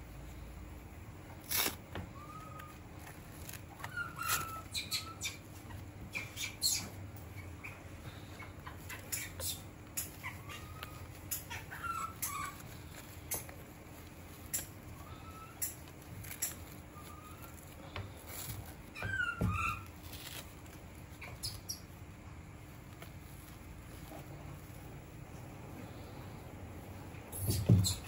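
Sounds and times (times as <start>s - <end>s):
baby monkey squeaking: 3.7s - 7.8s, 8.6s - 13.6s, 14.3s - 17.6s, 18.9s - 20.4s, 21.1s - 21.9s, 27.4s - 28.0s.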